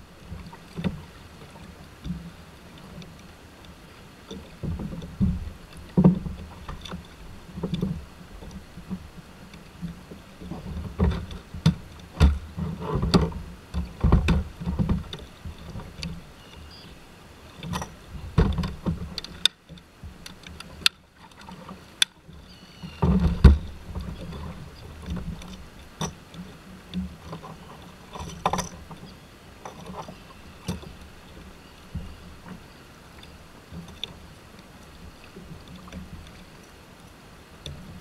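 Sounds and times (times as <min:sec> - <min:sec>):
hollow thumps against kayak hull: 0:04.6 - 0:06.8, 0:10.6 - 0:16.1, 0:18.2 - 0:19.3, 0:23.0 - 0:24.3
fishing gear clicking and rattling: 0:17.6 - 0:22.4, 0:23.0 - 0:31.5.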